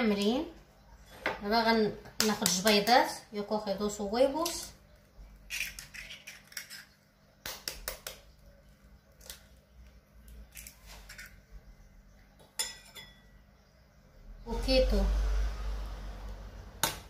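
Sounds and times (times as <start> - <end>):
eggshells cracking on bowl: 5.4 - 8.4, 9.1 - 11.4.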